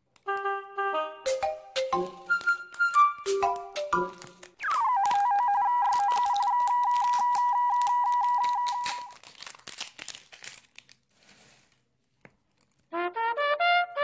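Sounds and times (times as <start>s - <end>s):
plastic shrink-wrap crinkling: 2.2s - 13.0s.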